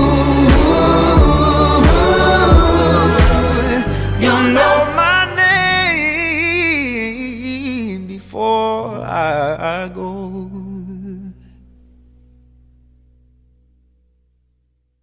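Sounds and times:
pop song with singing: 0.0 - 11.5.

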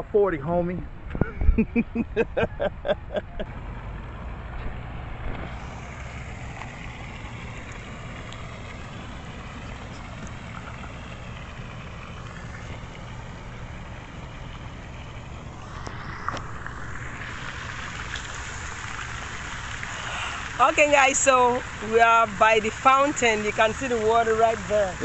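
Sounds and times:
low background rumble: 0.0 - 25.0
person laughing: 1.2 - 3.5.

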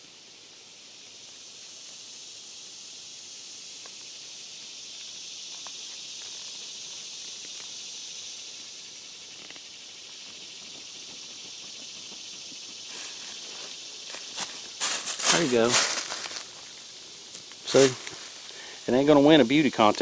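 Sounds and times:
insect chorus drone: 0.0 - 20.0
tent nylon rustling: 12.9 - 18.8.

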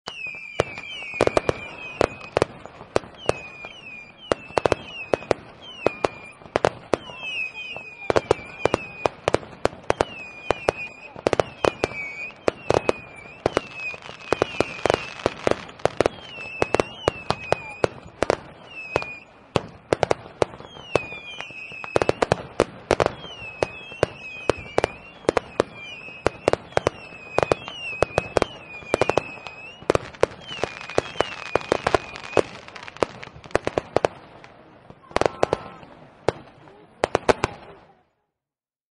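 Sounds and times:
fireworks bangs and pops: 0.0 - 38.1
fireworks whistling chirps: 0.1 - 34.4, 35.0 - 37.8.

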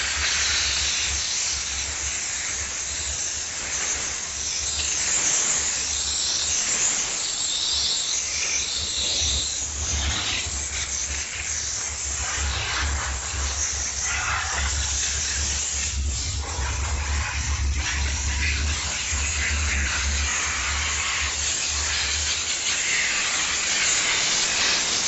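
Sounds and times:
steam jet hissing: 0.0 - 25.0
low hum: 12.2 - 22.3.

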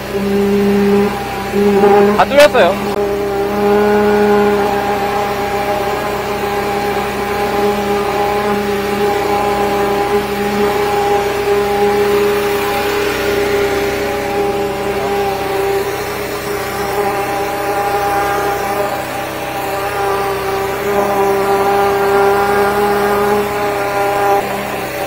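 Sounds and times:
sewer jetter engine running: 0.0 - 25.0.

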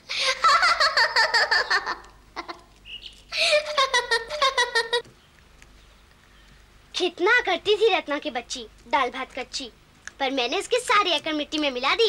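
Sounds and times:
girl giggling: 0.1 - 2.7, 3.3 - 5.0.

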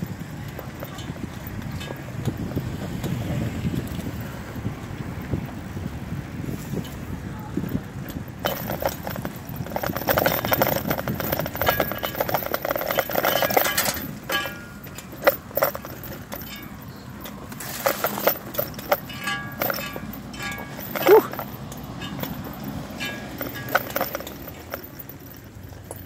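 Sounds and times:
bicycle tyres rolling over leaves: 16.5 - 19.3.

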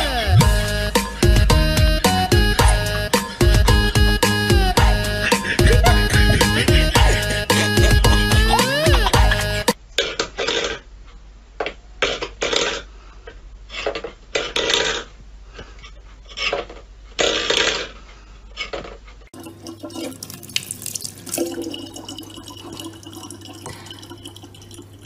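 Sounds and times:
tap water running into bottle: 19.4 - 25.0.

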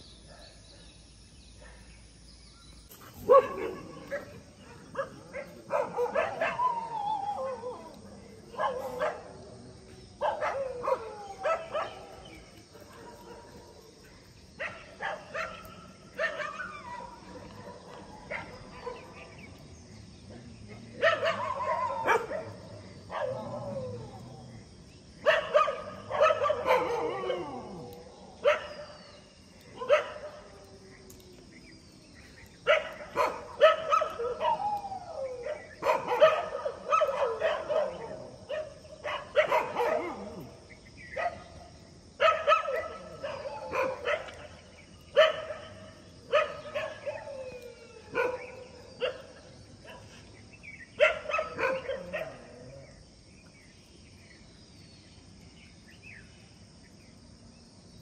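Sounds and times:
dogs barking and yelping: 2.9 - 9.5, 10.2 - 19.6, 20.8 - 41.6, 42.2 - 52.8.

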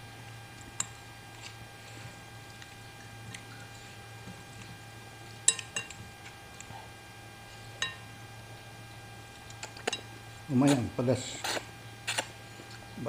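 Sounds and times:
low electrical hum: 0.0 - 13.0
cutlery clinking against a bowl: 5.5 - 6.0.

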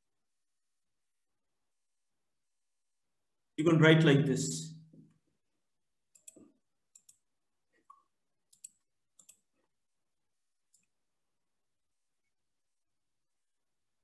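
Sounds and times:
faint mouse clicks: 6.1 - 9.6.

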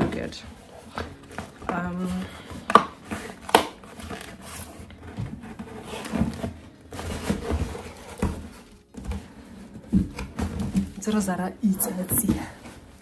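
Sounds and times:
packaging and clothing rustling: 0.0 - 13.0.

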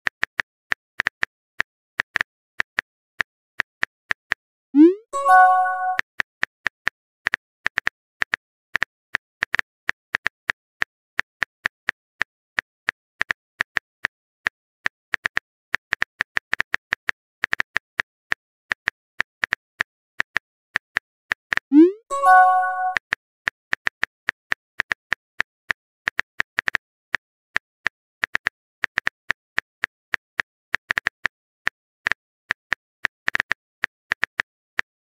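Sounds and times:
phone keyboard typing clicks: 4.8 - 6.0, 21.5 - 23.1
bright chime: 5.2 - 6.0, 22.1 - 23.0.

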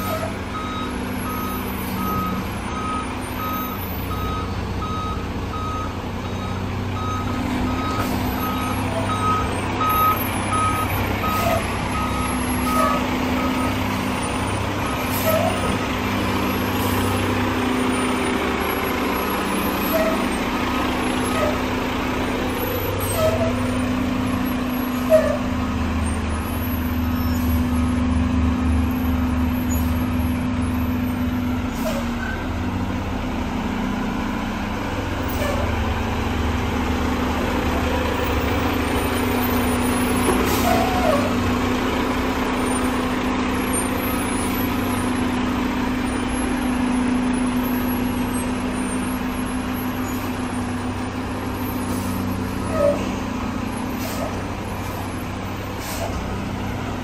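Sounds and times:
truck diesel engine running: 0.0 - 57.0.

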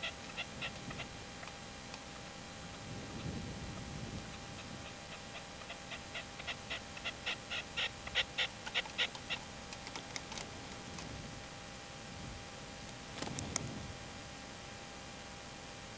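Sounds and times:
partridge calling: 0.0 - 1.2, 4.3 - 9.4.

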